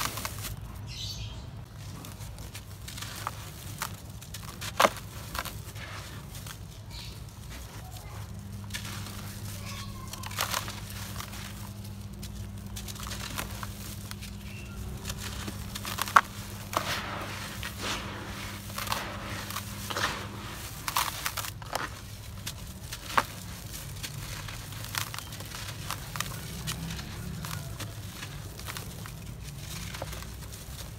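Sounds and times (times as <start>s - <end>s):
cement chunks crunching by hand: 0.0s - 0.9s, 1.6s - 30.9s
grit pouring onto powder: 14.8s - 30.6s.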